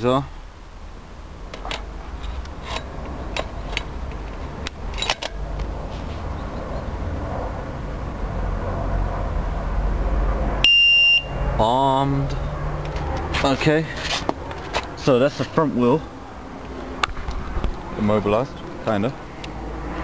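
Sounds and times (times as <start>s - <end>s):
sharp clicks and knocks: 1.5s - 5.7s
alarm beep: 10.6s - 11.4s.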